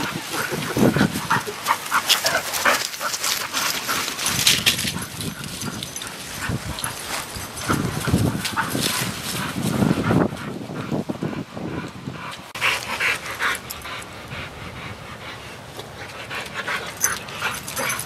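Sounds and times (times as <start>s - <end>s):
dogs scuffling: 0.1s - 9.8s.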